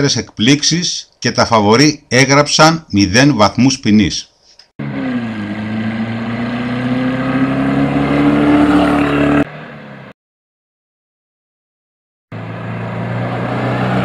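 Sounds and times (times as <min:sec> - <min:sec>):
car engine accelerating: 0:04.8 - 0:10.1, 0:12.3 - 0:14.0.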